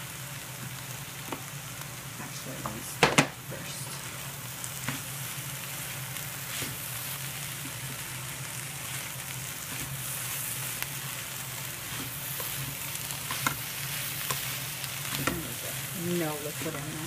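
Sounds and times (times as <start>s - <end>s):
food sizzling in a skillet: 0.0s - 17.0s
spatula scraping a pan: 9.6s - 16.0s.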